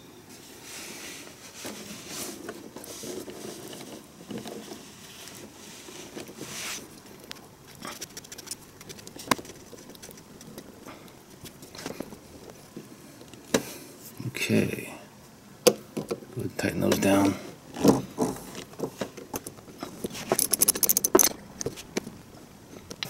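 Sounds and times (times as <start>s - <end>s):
wires rustling: 1.4s - 14.2s, 16.7s - 23.0s.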